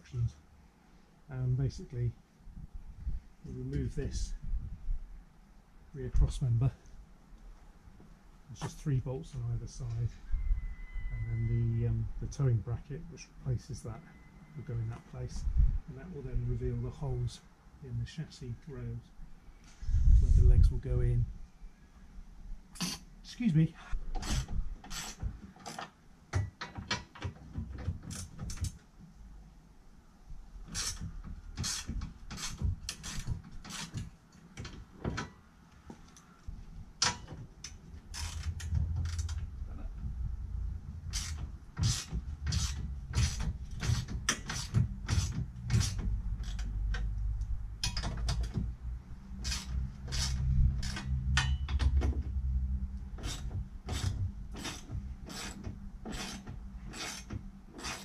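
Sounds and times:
ratchet wrench clicking: 41.1 - 46.8, 49.4 - 51.7.

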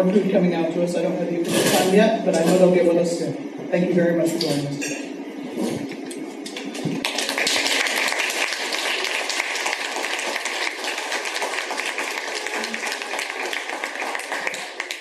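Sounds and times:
crowd applauding: 6.5 - 15.0.

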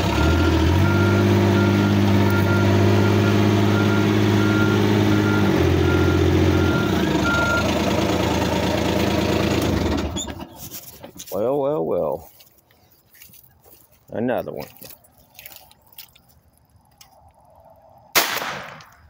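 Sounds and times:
utility vehicle engine running: 0.0 - 11.3
reverse alarm beeping: 0.1 - 7.8.

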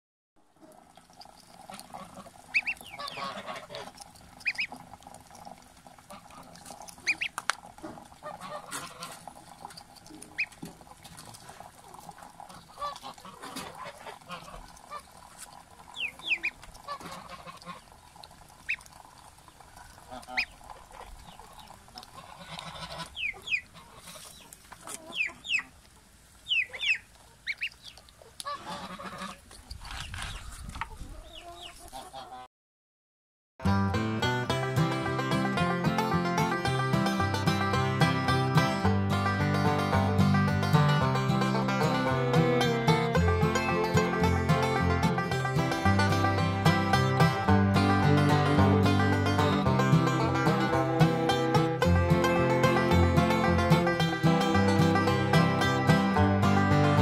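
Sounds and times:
ducklings peeping: 2.0 - 4.8, 6.3 - 7.4, 10.2 - 10.6, 16.0 - 17.9, 20.1 - 25.8, 26.4 - 29.4, 30.0 - 32.4.

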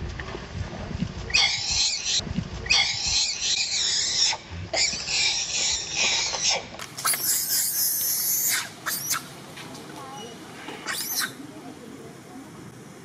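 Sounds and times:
monkey screaming: 1.3 - 9.3, 10.8 - 11.4.

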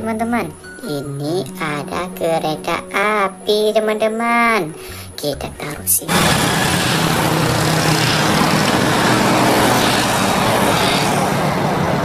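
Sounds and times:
diesel locomotive engine hum: 6.1 - 12.0
train running noise: 6.1 - 12.0.

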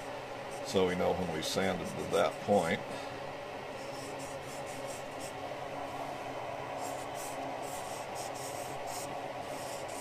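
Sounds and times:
steady hum: 0.0 - 10.0
marker rubbing on wood: 3.8 - 5.4, 6.8 - 10.0.

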